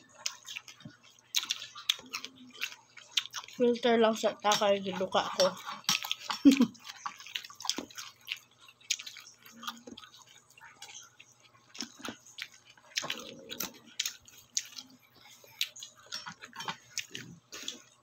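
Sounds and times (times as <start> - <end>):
person chewing food: 0.0 - 18.0.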